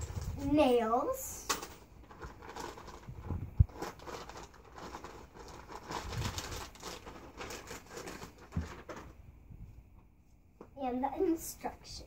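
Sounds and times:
plastic bag crinkling: 2.0 - 9.2.

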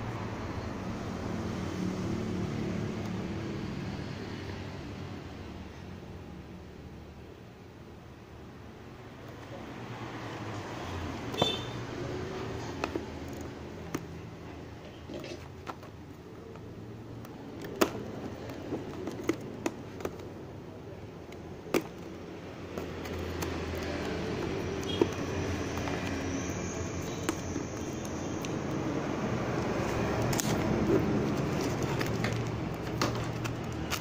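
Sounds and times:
light taps and clicks on box: 15.6 - 20.3
rustle of cardboard packaging: 29.7 - 34.0.

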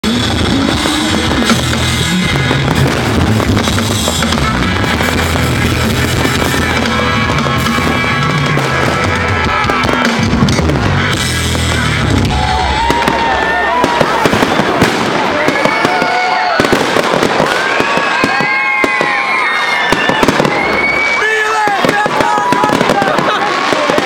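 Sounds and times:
music: 0.0 - 14.2
fireworks bursting and crackling: 0.0 - 24.0.

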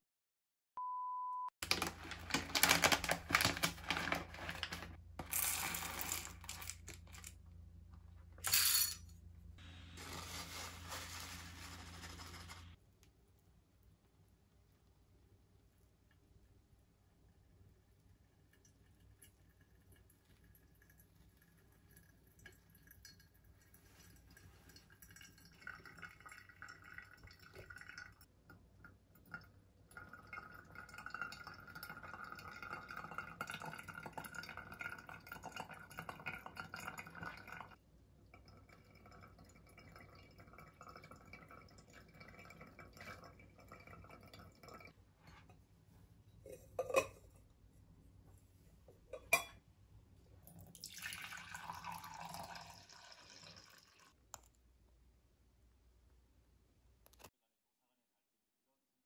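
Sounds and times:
coffee trickling into glass: 18.4 - 28.2, 29.2 - 45.0, 50.5 - 54.1
water pouring from kettle: 18.6 - 28.3, 29.3 - 37.8, 38.4 - 45.0, 50.4 - 54.2.

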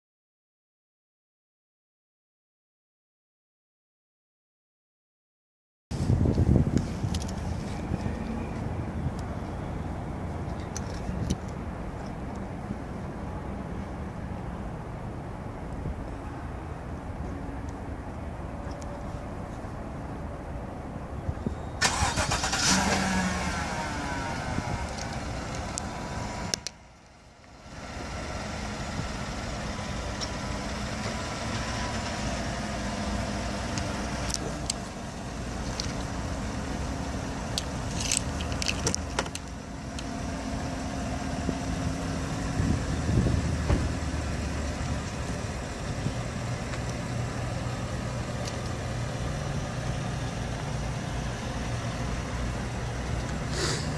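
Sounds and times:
pickup engine starting and idling: 21.8 - 26.7.

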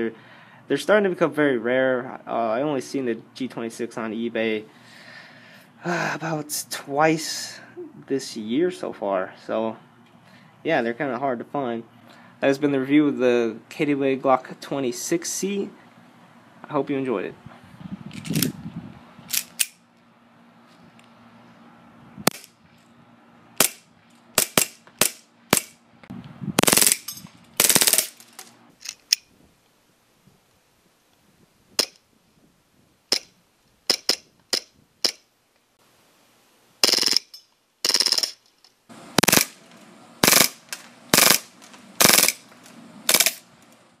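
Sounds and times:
airsoft pistol full-auto bursts: 23.6 - 25.8, 26.6 - 28.2, 36.8 - 37.2, 37.8 - 38.3, 39.2 - 39.6, 40.2 - 42.4, 43.1 - 43.4.

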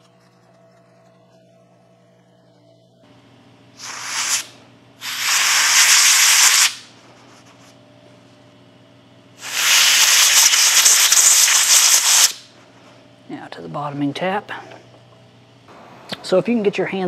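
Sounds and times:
compressed air blow gun hissing: 3.8 - 6.9, 9.4 - 12.5.

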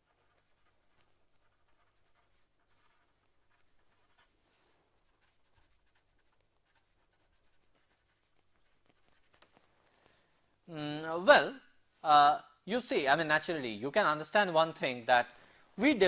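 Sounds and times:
pen scratching on paper: 0.0 - 9.6.

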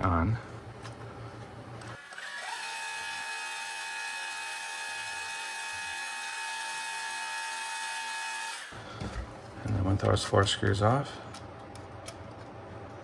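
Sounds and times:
electric screwdriver motor whine: 1.8 - 8.7.

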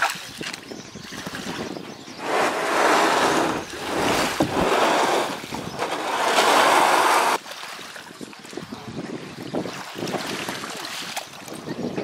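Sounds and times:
kayak hull scraping over pebbles: 2.2 - 7.4.

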